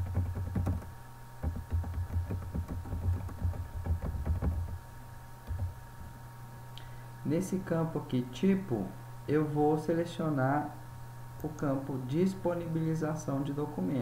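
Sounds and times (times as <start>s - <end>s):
typing on computer keyboard: 0.0s - 4.8s
faint electrical hum: 0.0s - 14.0s.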